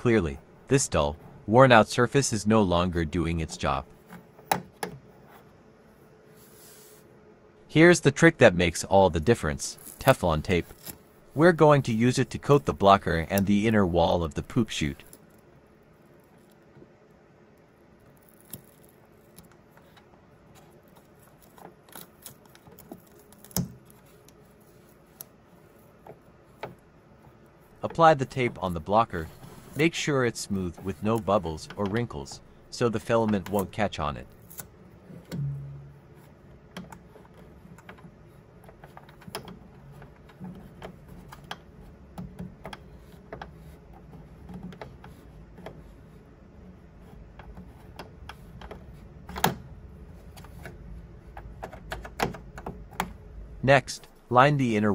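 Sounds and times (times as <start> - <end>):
fingers handling tape: 9.8 - 53.2
sharp knock: 35.3 - 36.0.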